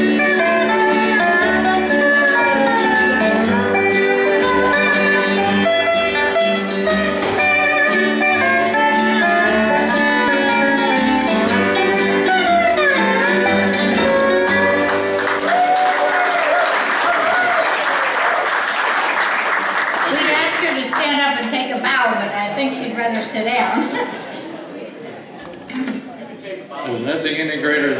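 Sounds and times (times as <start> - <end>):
bluegrass band playing: 0.0 - 15.7, 20.0 - 24.5
audience applause: 14.7 - 21.6.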